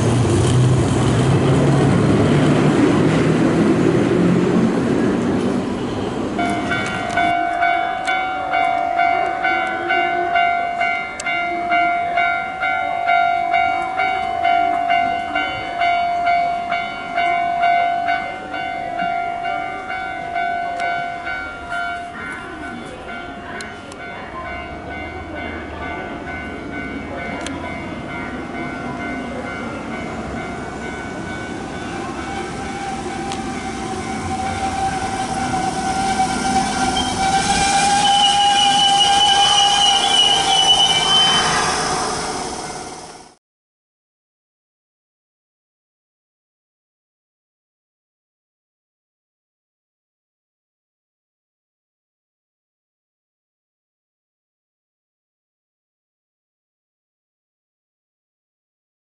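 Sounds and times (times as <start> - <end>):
electric train whine: 0.0 - 12.3, 26.1 - 43.4
train wheels rumbling: 0.0 - 12.5, 13.2 - 43.4
level crossing alarm ringing: 28.8 - 43.0
high squealing tone: 32.2 - 43.3.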